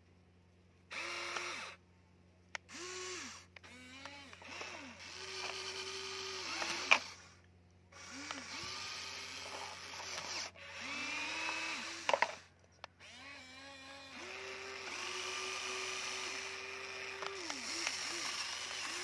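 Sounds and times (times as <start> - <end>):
toy excavator motors whining: 0.9 - 1.8, 2.5 - 19.0.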